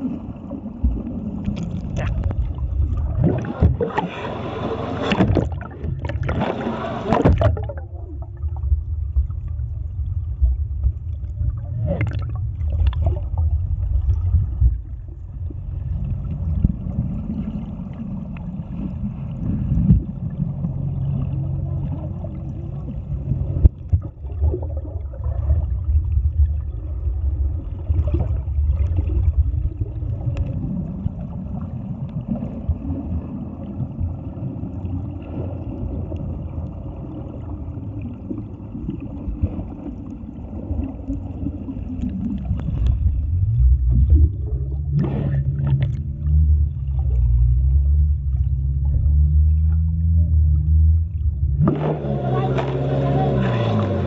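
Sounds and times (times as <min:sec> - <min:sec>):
muffled underwater rumble: 0:00.0 - 0:54.0
underwater gurgling: 0:00.0 - 0:54.0
underwater knocks: 0:01.6 - 0:04.1, 0:05.0 - 0:07.9.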